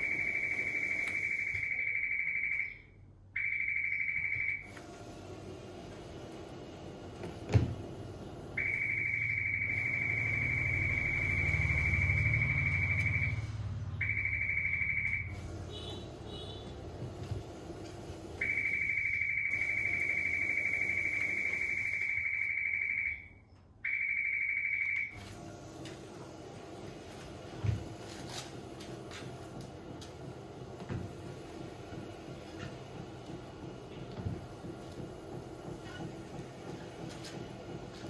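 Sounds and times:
high-pitched alarm buzzer: 8.6s - 16.6s, 18.4s - 23.3s.

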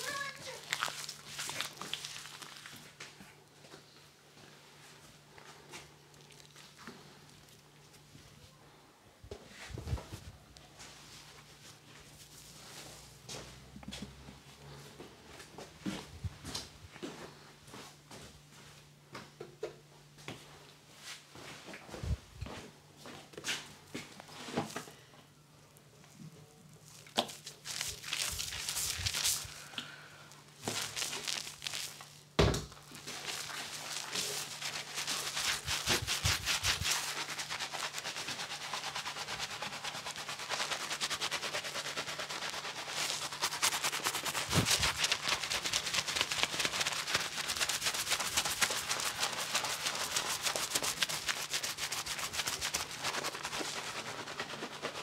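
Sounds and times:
fingers scrubbing lather in hair: 0.0s - 2.8s, 26.8s - 29.6s, 30.6s - 32.2s, 33.0s - 55.0s.

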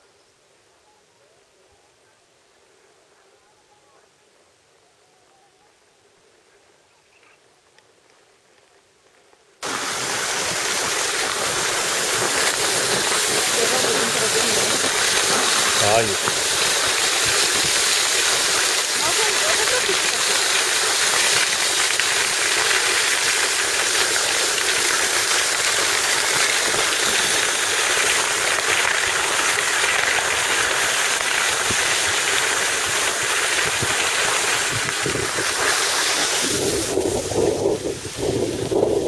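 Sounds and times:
skis sliding over snow: 8.2s - 39.0s.

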